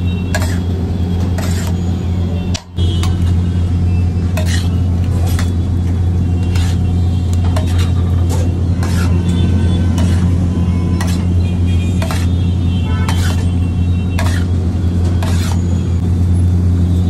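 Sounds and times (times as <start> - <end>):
low kitchen hum: 0.0 - 17.0
metal spatulas scraping iron griddle: 0.2 - 0.7, 1.3 - 1.9, 4.4 - 5.6, 6.4 - 15.7.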